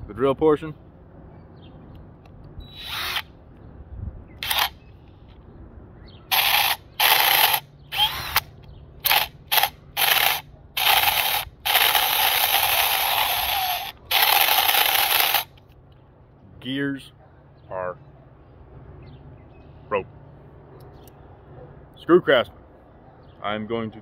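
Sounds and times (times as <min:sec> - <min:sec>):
cordless drill bursts: 0:02.6 - 0:03.3, 0:04.4 - 0:04.8, 0:06.3 - 0:15.5.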